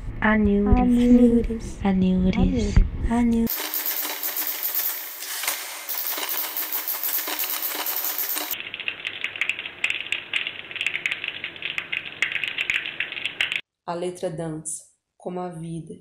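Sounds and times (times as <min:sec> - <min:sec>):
typewriter typebars clacking: 0:03.5 - 0:05.1, 0:05.9 - 0:13.6
rapid small clicks: 0:05.9 - 0:13.6.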